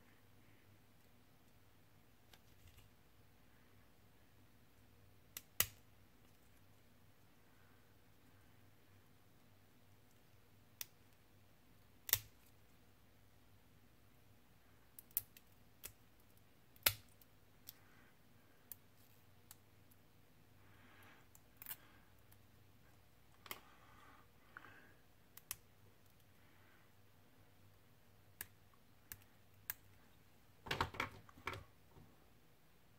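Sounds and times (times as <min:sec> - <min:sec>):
plastic parts handling noise: 0:30.6 - 0:32.1.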